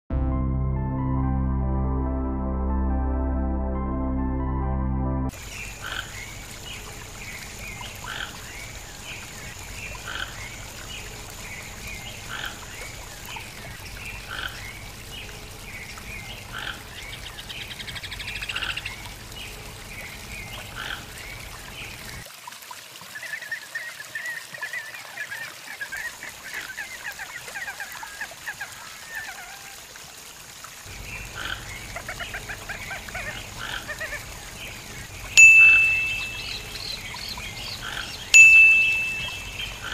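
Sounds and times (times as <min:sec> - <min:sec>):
toucan calling: 0:35.4 - 0:39.9.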